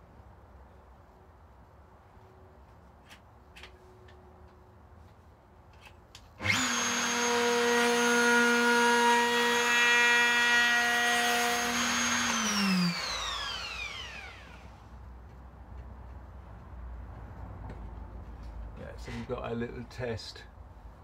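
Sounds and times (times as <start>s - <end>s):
electric router whining: 6.4s - 14.7s.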